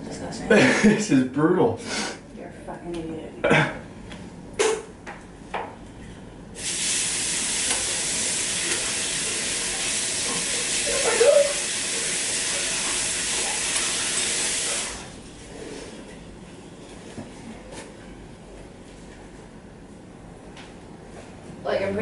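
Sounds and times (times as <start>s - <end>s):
water running from tap: 6.6s - 15.2s.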